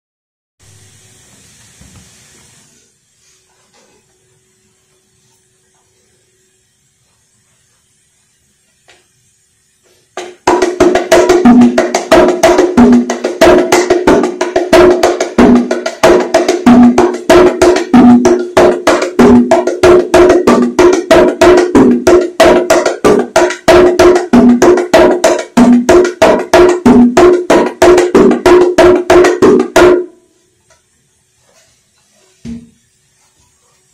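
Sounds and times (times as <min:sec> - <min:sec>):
bongos played by hand: 0:10.2 - 0:30.2.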